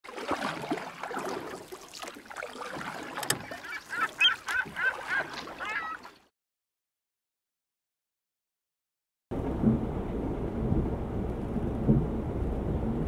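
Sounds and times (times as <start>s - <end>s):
geese honking: 3.4s - 6.1s
jumble of noise: 9.3s - 13.0s.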